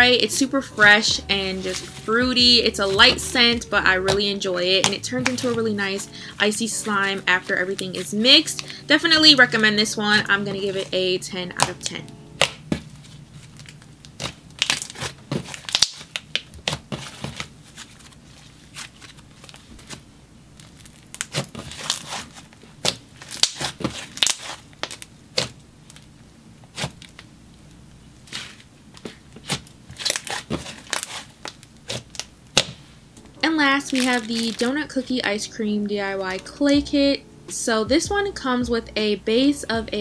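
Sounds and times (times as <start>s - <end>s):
slime squishing with sticky crackles: 11.6s - 27.3s, 28.2s - 35.2s.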